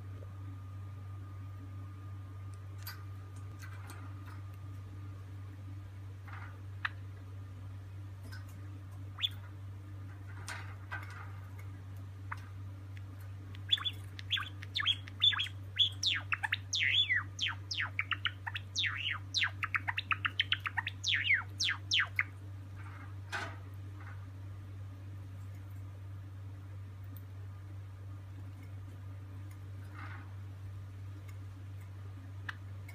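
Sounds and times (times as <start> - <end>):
sparrow singing: 9.1 - 9.5, 13.5 - 22.4.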